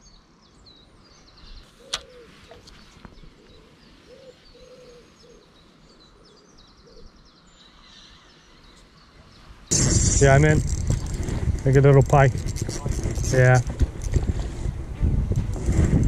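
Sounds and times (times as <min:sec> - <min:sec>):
small birds chirping: 0:00.0 - 0:14.5
sharp click: 0:01.9 - 0:02.7.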